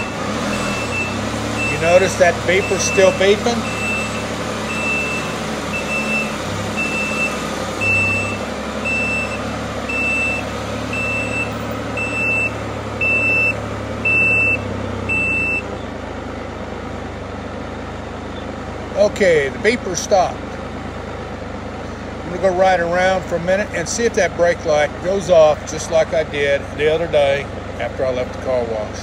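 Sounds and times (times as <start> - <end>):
high warning beeps: 0.0 - 15.7.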